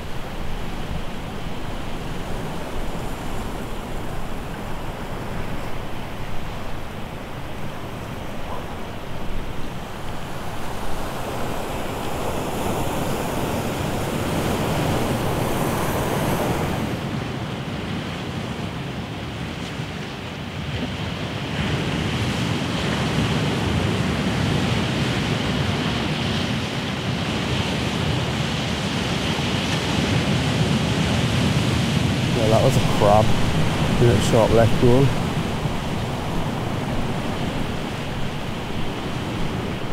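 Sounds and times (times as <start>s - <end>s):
wind rumbling on microphone: 0.0s - 39.9s
surf breaking over rocks: 29.7s - 39.9s.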